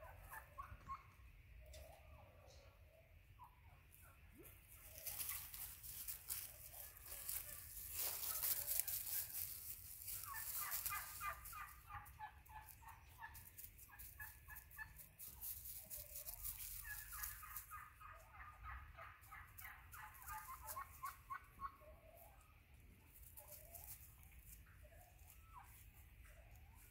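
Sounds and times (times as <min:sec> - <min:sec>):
dry leaves rustling and crunching: 0:04.8 - 0:18.2, 0:23.1 - 0:25.8.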